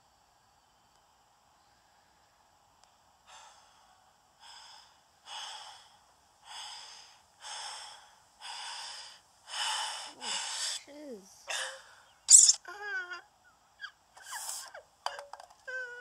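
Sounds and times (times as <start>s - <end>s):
heavy rhythmic breathing: 3.2s - 12.2s.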